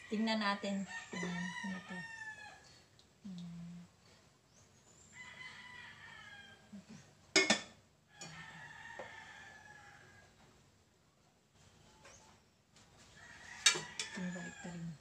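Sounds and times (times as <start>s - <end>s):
rooster crowing: 0.9s - 2.7s, 5.1s - 6.8s, 8.1s - 10.4s, 13.1s - 15.0s.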